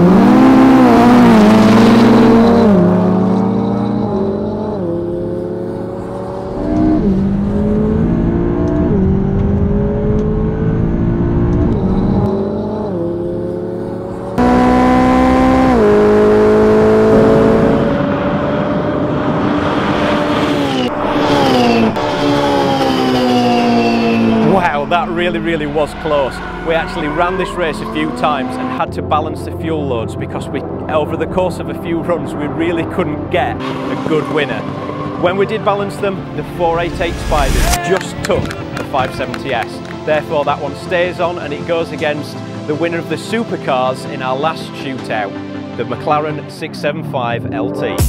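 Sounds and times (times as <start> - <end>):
car rushing past: 0.0 - 28.8, 33.5 - 40.2
sports car engines accelerating: 0.0 - 46.7.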